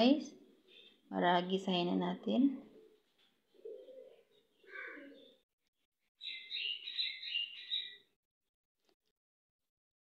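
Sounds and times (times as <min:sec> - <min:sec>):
birds chirping: 0:02.8 - 0:05.4, 0:06.2 - 0:08.1.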